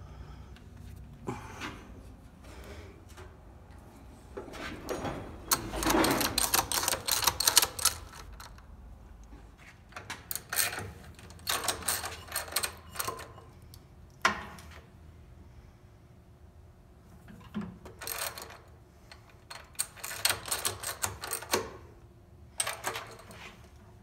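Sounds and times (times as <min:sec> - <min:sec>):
metal tools clattering: 0:05.0 - 0:08.5.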